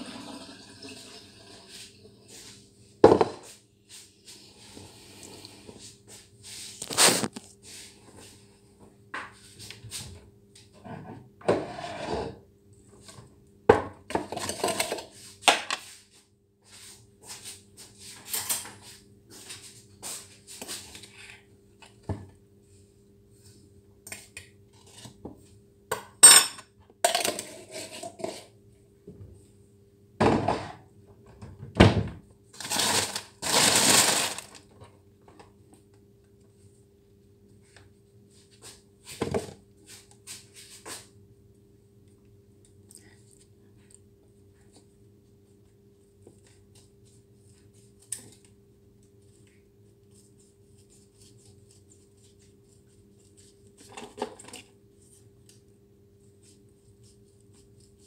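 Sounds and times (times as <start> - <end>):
dishes and jar clinking on counter: 25.9 - 28.3.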